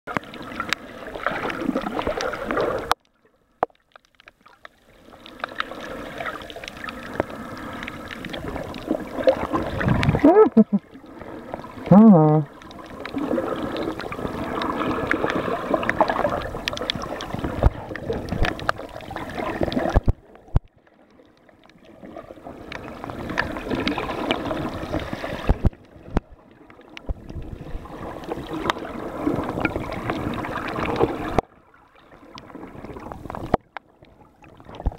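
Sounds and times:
muffled underwater churning: 0.1s - 34.9s
underwater clicks: 6.5s - 10.8s, 14.5s - 21.8s.

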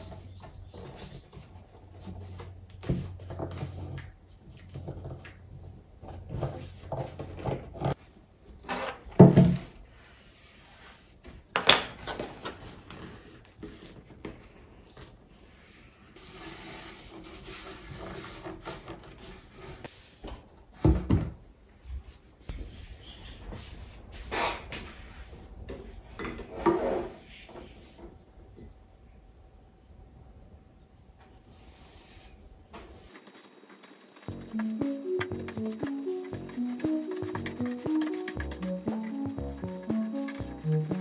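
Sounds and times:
hands rubbing paper: 32.9s - 41.0s.

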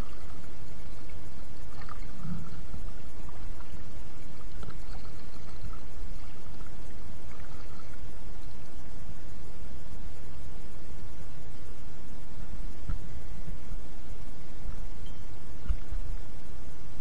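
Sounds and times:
water lapping against kayak: 0.0s - 8.6s.

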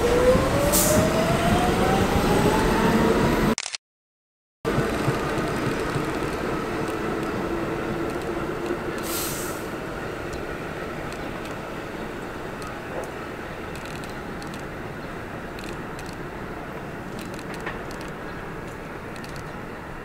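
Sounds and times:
subway train pulling away: 0.0s - 3.6s, 4.7s - 20.0s
short hiss: 9.0s - 9.7s.

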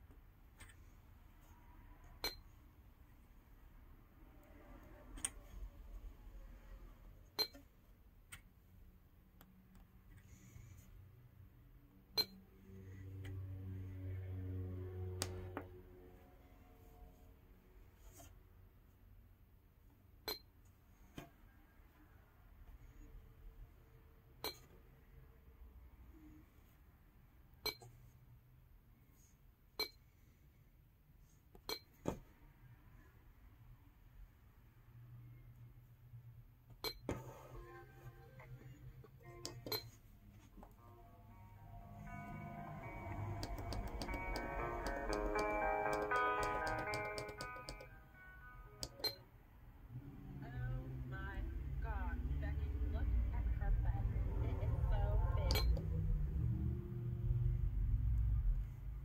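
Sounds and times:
button ticks and clicks: 39.4s - 39.9s, 42.1s - 48.0s, 48.8s - 49.2s, 55.4s - 56.0s
taps on glass touchscreen: 43.1s - 48.0s, 55.4s - 55.9s.

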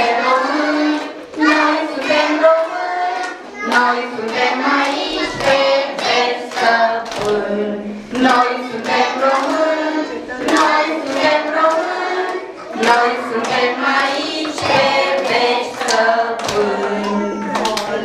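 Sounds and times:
children singing: 0.0s - 18.0s
hands clapping in time: 10.4s - 13.7s.

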